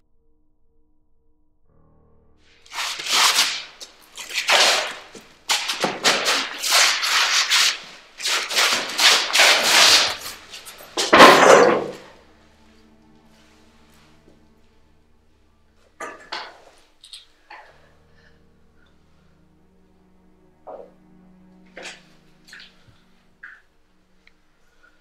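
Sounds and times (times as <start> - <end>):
loud hissing bursts: 2.6 - 11.1.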